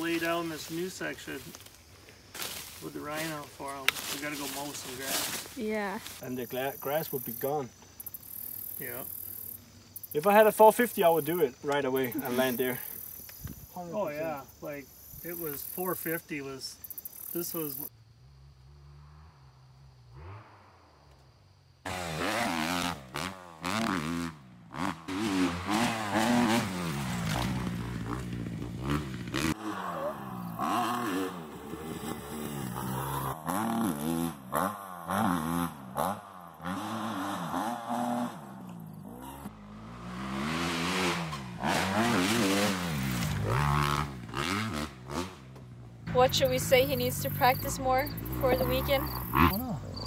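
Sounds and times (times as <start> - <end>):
dirt bike engine revving: 6.5 - 13.3, 17.0 - 21.1, 21.8 - 50.0.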